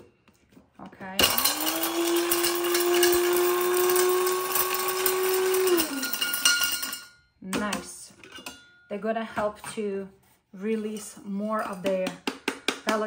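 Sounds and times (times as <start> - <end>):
blade grinder motor: 1.2 - 7.0
pieces rattling in grinder: 1.2 - 7.1.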